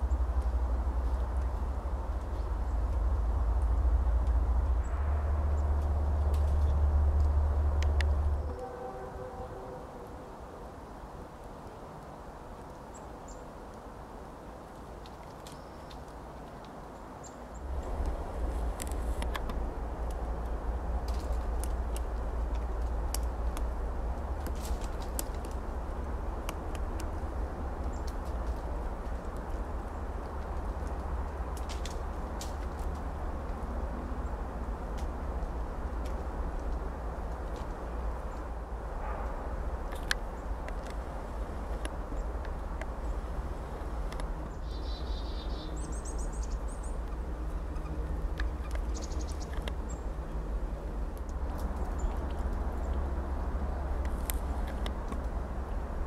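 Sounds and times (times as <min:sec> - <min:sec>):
low rumble: 0:00.0 - 0:10.1, 0:17.6 - 0:44.2.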